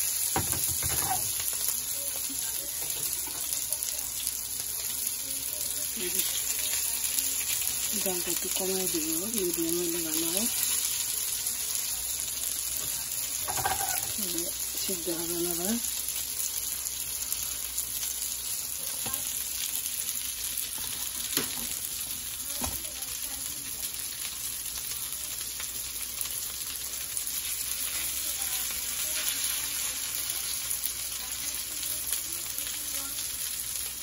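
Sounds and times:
meat sizzling in a skillet: 0.0 - 34.0
spatula tapping on pan: 0.3 - 1.3.

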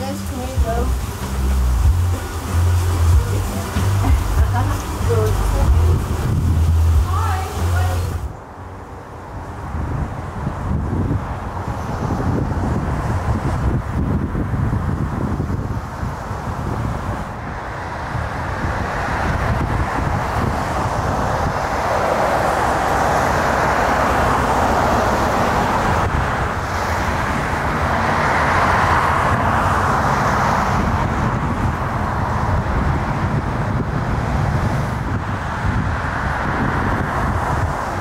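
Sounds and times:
wind buffeting microphone: 0.0 - 38.0
rushing of tyres: 9.4 - 38.0.

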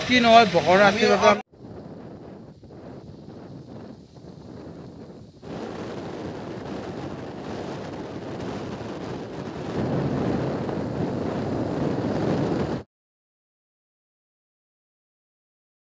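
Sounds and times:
wind rushing over microphone: 0.0 - 12.9.

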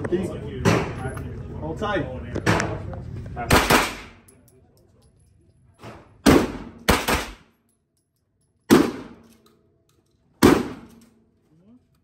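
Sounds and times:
echoing gunshots: 3.5 - 4.2, 6.2 - 7.5, 8.7 - 9.3, 10.4 - 11.0.

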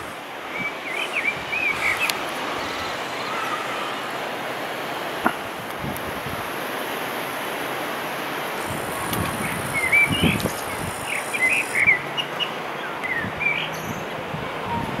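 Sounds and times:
steady rushing noise: 0.0 - 15.0
small birds chirping: 0.5 - 4.1, 8.6 - 14.0.

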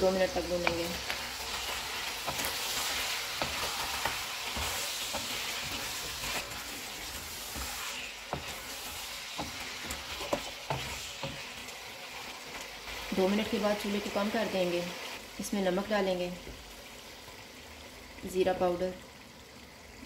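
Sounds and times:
food sizzling in hot oil: 0.0 - 20.0
wooden spatula scraping pan: 0.5 - 11.7.

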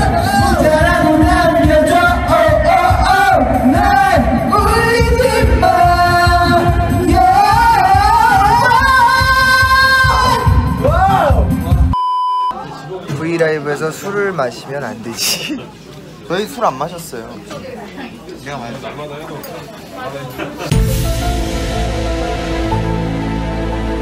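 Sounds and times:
men singing karaoke: 0.0 - 11.1
backing track with steady beat: 0.0 - 12.0, 20.7 - 24.0.

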